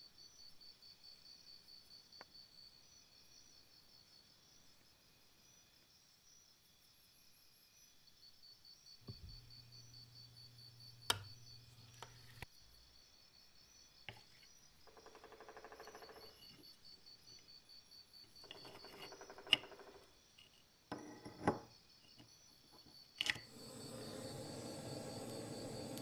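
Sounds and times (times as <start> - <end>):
fine rasping scraping: 18.5 - 19.6.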